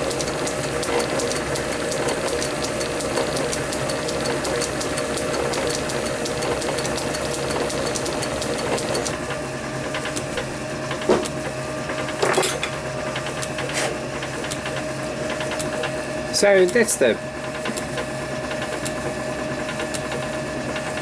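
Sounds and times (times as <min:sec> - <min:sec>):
fine rapid ticking of cutter: 0:00.0 - 0:09.2, 0:09.9 - 0:12.2, 0:13.1 - 0:21.0
lathe machine hum: 0:00.0 - 0:21.0.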